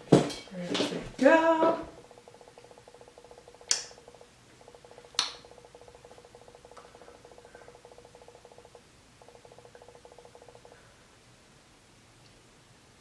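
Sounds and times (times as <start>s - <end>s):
faint rapid buzz: 1.1s - 11.0s
sharp taps: 1.6s - 10.6s.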